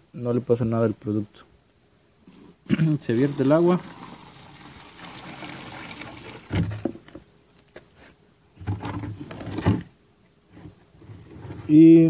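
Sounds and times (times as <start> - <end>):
water pouring into plastic bucket: 2.9 - 6.9
dull knocks on plastic bucket: 6.4 - 7.2.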